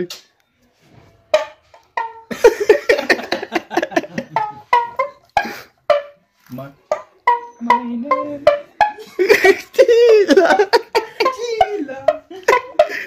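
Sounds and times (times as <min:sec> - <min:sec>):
plucked single-string lute: 0:01.3 - 0:02.4, 0:06.9 - 0:09.2.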